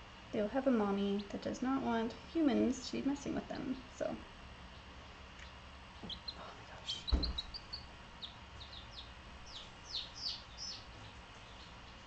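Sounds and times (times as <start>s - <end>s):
baby chicks peeping: 0.9s - 1.6s, 4.6s - 12.0s
dull thump: 7.1s - 7.5s.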